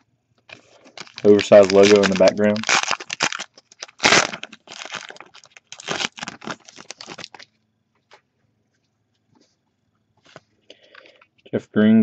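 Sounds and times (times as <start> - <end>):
foil wrapper tearing and crinkling: 0.5 - 7.5.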